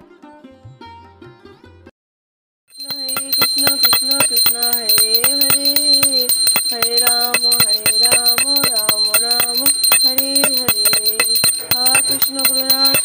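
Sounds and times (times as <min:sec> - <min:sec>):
hand bell ringing rapidly: 0:02.7 - 0:13.0
person chanting: 0:02.8 - 0:13.0.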